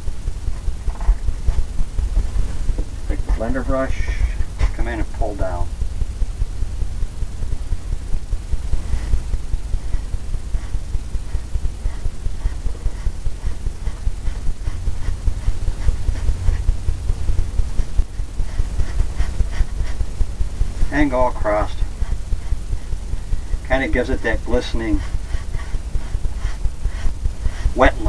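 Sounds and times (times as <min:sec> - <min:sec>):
steady low rumble: 0:00.0 - 0:28.0
brush thumping on canvas: 0:08.6 - 0:28.0.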